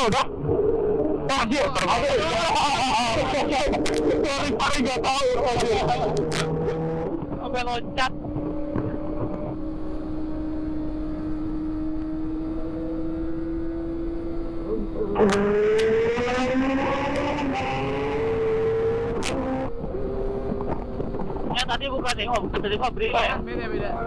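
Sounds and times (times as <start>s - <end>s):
motorcycle engine cruising and accelerating: 0.0s - 24.0s.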